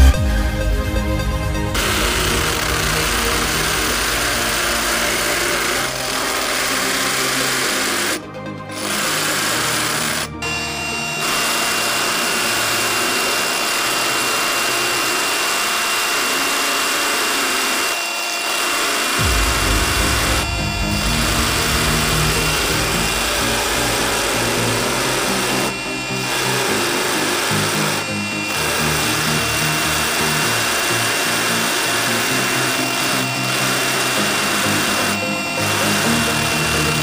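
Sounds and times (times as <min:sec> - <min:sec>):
electronic dance music: 0:00.0 - 0:15.2, 0:19.2 - 0:37.0
hammer drill into concrete: 0:01.6 - 0:37.0.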